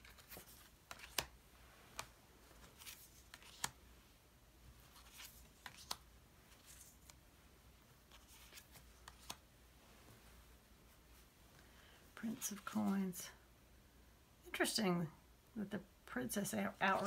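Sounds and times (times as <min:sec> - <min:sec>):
cards clicking softly: 0:00.0 - 0:03.8, 0:04.9 - 0:07.2, 0:08.1 - 0:09.4
papery card swishes: 0:01.9 - 0:03.8.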